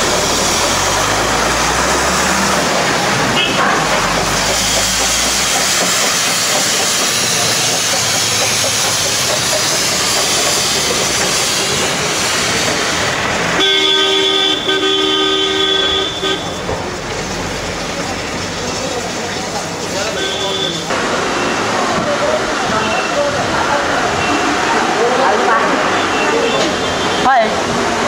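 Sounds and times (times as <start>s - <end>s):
steam locomotive hissing: 0.0s - 28.0s
long steady train whistle toot: 13.6s - 16.6s.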